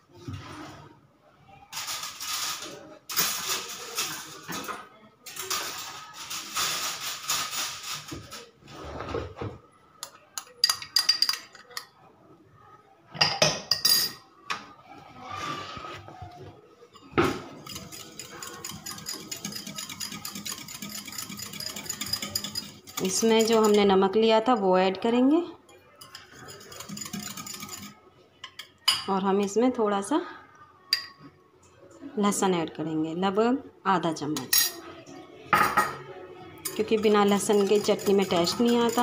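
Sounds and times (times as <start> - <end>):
utensils clinking on steel bowl: 10.4 - 11.9, 13.3 - 14.3, 17.0 - 24.6, 25.8 - 29.1, 34.4 - 34.8, 36.6 - 39.0
whisk beating in steel bowl: 17.4 - 23.9, 26.0 - 28.0, 36.6 - 39.0.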